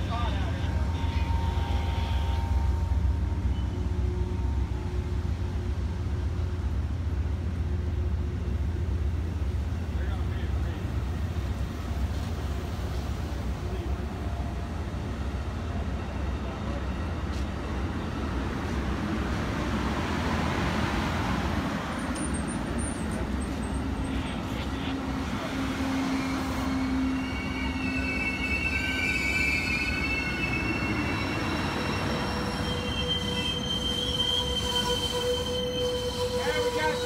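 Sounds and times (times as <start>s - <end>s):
train wheels rumbling on rails: 0.0s - 37.0s
high wheel squeals: 25.4s - 37.0s.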